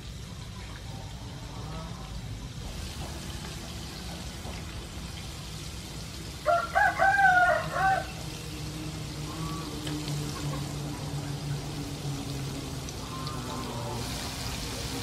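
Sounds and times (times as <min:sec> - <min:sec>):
squid deep-frying in oil: 0:00.0 - 0:15.0
rooster crowing: 0:06.4 - 0:08.4.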